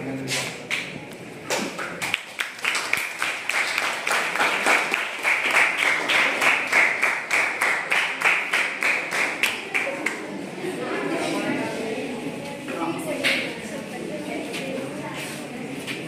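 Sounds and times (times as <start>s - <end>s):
people clapping: 0.3s - 10.4s.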